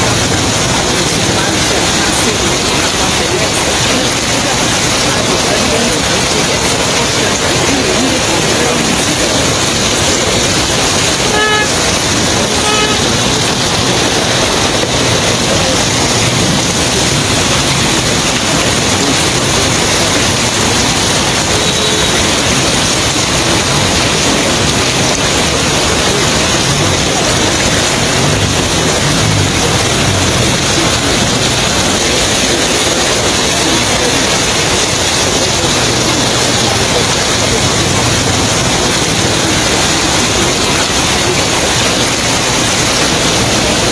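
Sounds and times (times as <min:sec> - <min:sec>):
street traffic rushing: 0:00.0 - 0:43.9
vehicle horn tooting: 0:11.2 - 0:13.3, 0:21.5 - 0:22.4.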